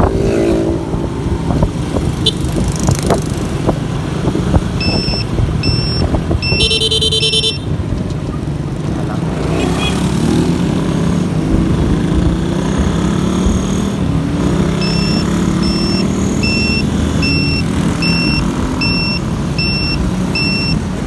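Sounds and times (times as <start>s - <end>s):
motorcycle engine revving: 0.0s - 7.6s, 8.7s - 21.0s
short electronic beeps: 4.8s - 7.7s, 14.6s - 20.9s.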